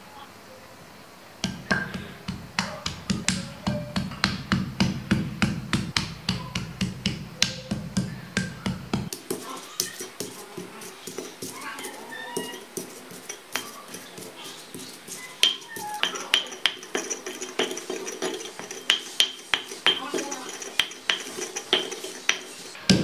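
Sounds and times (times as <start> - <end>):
stone pestle grinding in mortar: 1.4 - 23.0.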